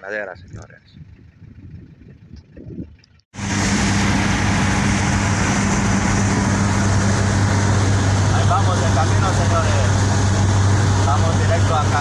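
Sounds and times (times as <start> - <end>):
vehicle engine hum and road noise: 0.1 - 12.0.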